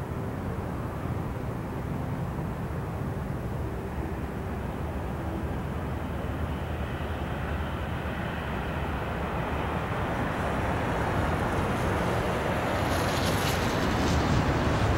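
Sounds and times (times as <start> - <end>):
wind rushing on microphone: 7.7 - 14.9.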